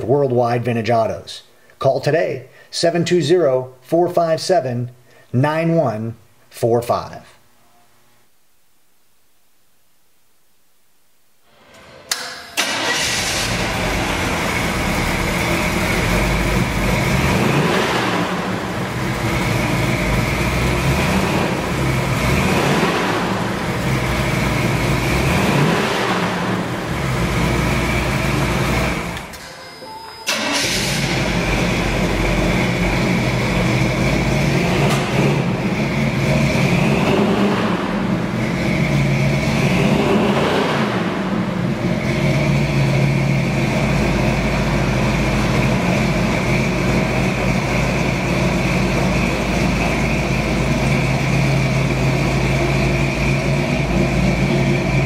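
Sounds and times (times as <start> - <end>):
truck engine cranking: 12.1 - 16.4, 25.1 - 32.8
truck engine revving: 12.6 - 29.4, 30.3 - 55.0.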